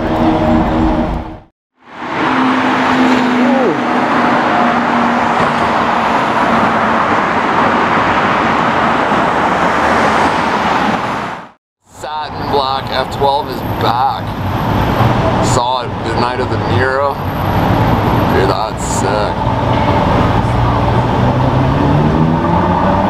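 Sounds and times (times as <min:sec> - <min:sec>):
sports car engine and exhaust: 0:00.0 - 0:10.6, 0:12.4 - 0:23.0
traffic: 0:00.0 - 0:23.0.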